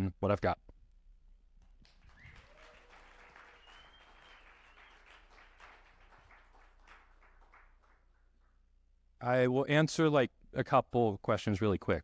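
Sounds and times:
faint audience applause: 0:01.6 - 0:08.6.

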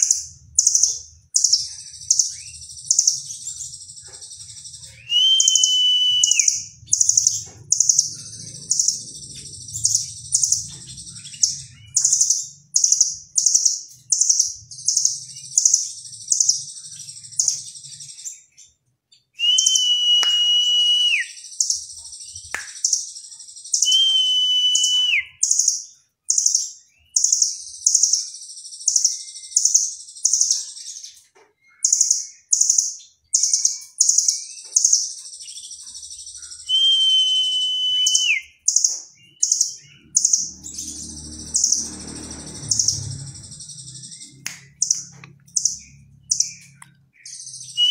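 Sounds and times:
bird chirping trills: 0:00.0 - 0:47.9
bird held whistles: 0:05.0 - 0:06.7, 0:19.4 - 0:21.4, 0:23.8 - 0:25.4, 0:36.7 - 0:38.6.

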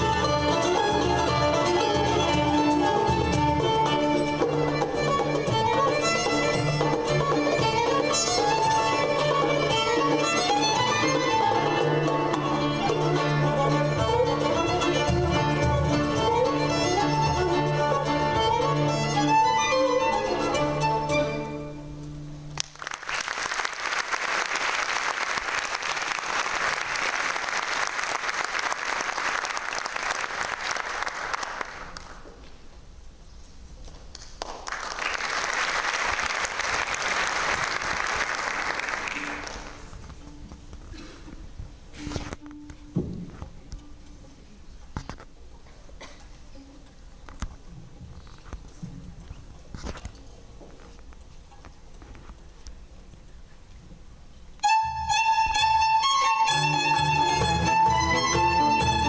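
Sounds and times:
string ensemble: 0:00.0 - 0:32.2, 0:34.8 - 0:40.9, 0:54.6 - 0:59.0
audience applauding: 0:22.6 - 0:32.2, 0:34.2 - 0:39.9.

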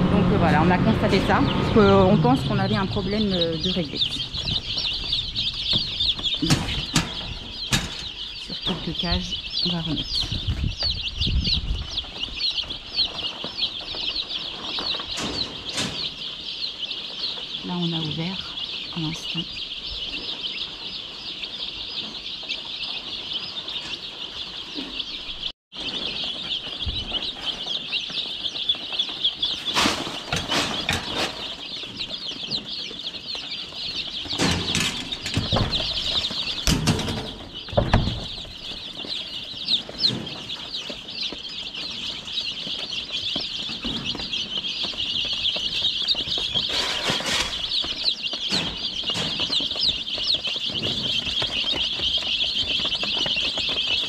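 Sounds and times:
chicks peeping: 0:00.0 - 0:54.0
knocks and rustles: 0:02.3 - 0:16.5, 0:25.8 - 0:54.0.

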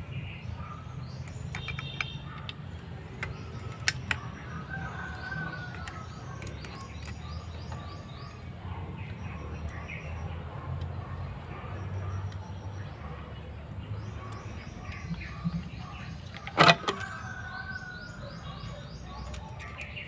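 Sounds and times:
birds chirping: 0:00.0 - 0:20.0
sharp clicks: 0:01.1 - 0:09.8.

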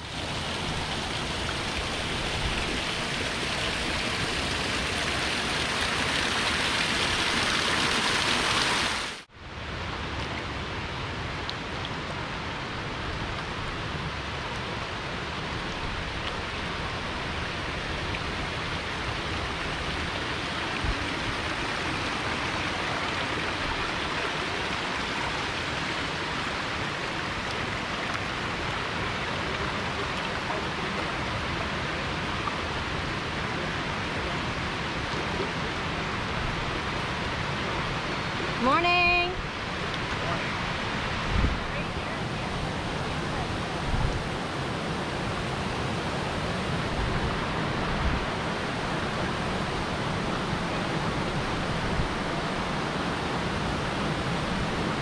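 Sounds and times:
water rushing hiss: 0:00.0 - 0:09.3, 0:14.2 - 0:38.8
small waterfall splashing: 0:00.0 - 0:55.0.

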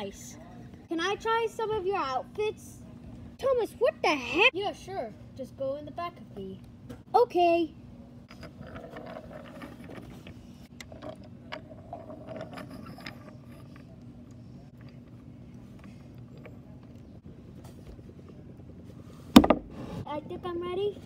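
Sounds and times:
outdoor background rumble: 0:00.0 - 0:21.0
low hum: 0:07.7 - 0:21.0.

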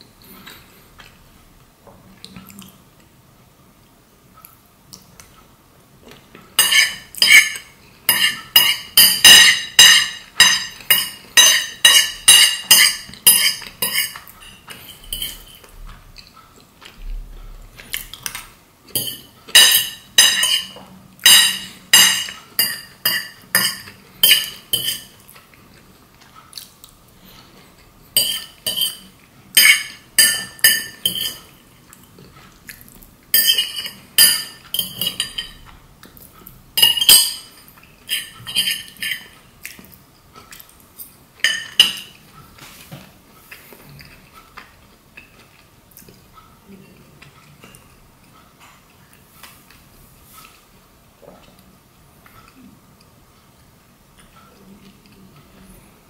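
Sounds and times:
fork scraping a ceramic plate: 0:06.6 - 0:15.7, 0:28.2 - 0:31.5, 0:36.8 - 0:39.4.

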